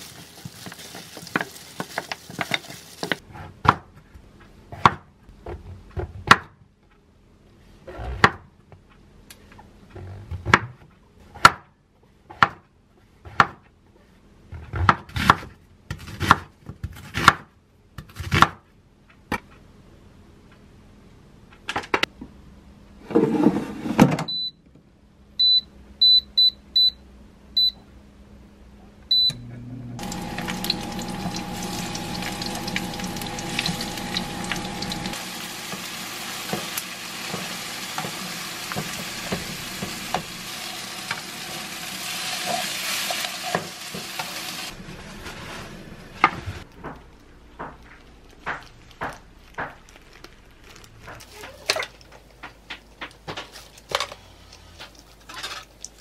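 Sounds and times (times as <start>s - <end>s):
vegetables sizzling in frying pan: 0.0s - 3.2s, 30.0s - 44.7s.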